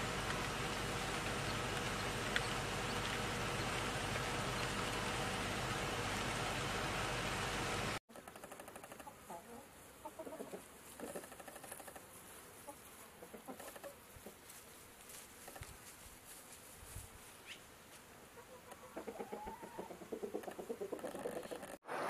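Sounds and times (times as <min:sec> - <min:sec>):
chickens clucking: 0:08.9 - 0:14.5, 0:18.4 - 0:21.8.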